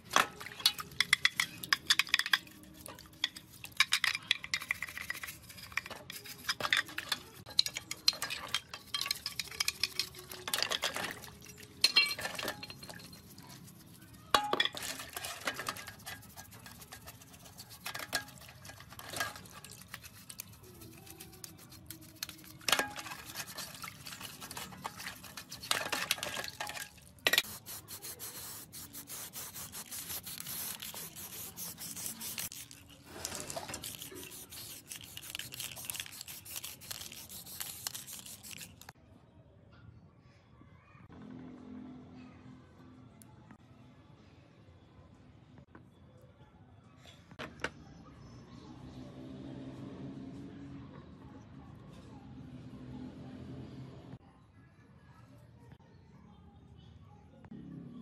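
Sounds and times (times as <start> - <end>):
metal clinking against basin: 0.1 - 20.1
brush scrubbing metal: 0.4 - 38.9
aerosol spray can hissing: 27.4 - 32.7.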